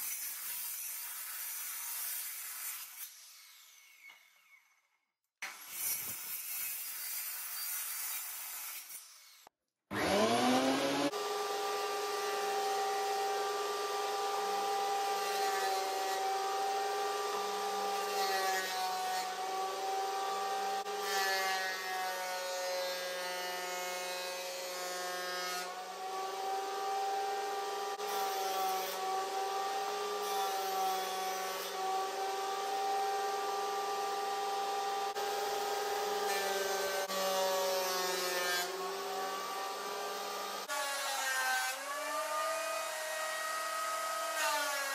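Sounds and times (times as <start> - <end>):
miter saw cutting wood: 5.4 - 44.9
planer motor whining: 9.9 - 18.2.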